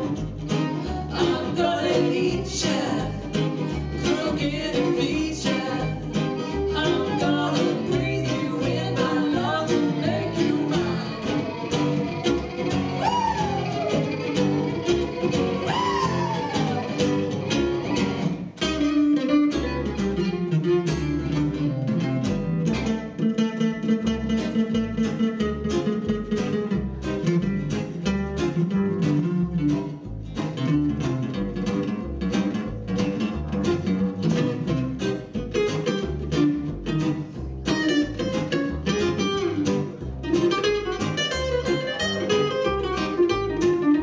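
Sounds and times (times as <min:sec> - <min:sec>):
violin: 0:00.0 - 0:23.2, 0:37.7 - 0:44.0
strummed acoustic guitars: 0:00.0 - 0:44.0
upright bass: 0:00.0 - 0:44.0
falling sliding notes: 0:09.9 - 0:18.4.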